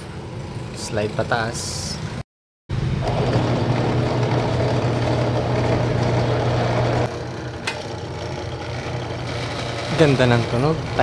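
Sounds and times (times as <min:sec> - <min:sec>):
drill press motor humming: 0:02.9 - 0:11.0.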